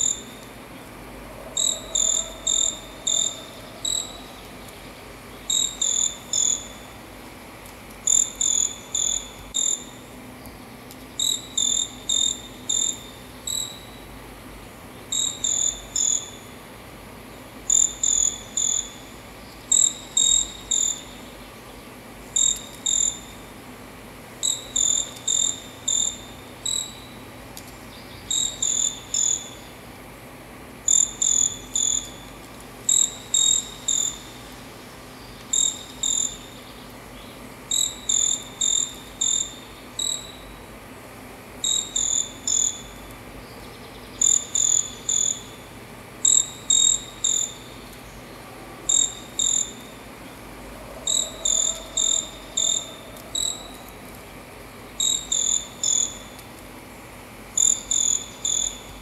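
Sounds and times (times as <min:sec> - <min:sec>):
bird high insect-like chirps: 0:00.0 - 0:00.5, 0:01.6 - 0:07.0, 0:08.0 - 0:10.1, 0:11.2 - 0:14.1, 0:15.1 - 0:16.6, 0:17.7 - 0:21.4, 0:22.3 - 0:23.5, 0:24.4 - 0:29.8, 0:30.8 - 0:34.4, 0:35.2 - 0:40.6, 0:41.6 - 0:48.2, 0:48.9 - 0:50.0, 0:51.1 - 0:53.9, 0:54.9 - 0:56.5, 0:57.6 - 0:59.0.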